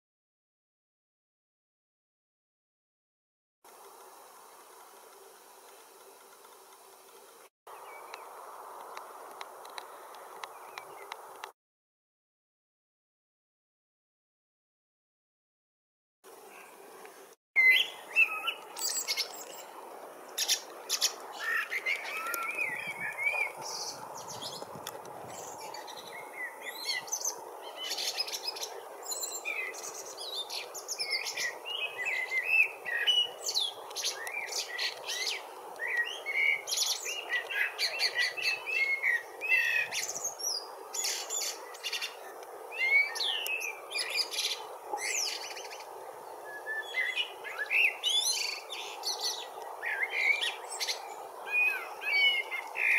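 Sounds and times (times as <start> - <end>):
blackbird singing: 17.6 - 19.7, 20.4 - 24.7, 25.3 - 45.8, 46.4 - 52.9
other birds chirping: 20.3 - 45.9.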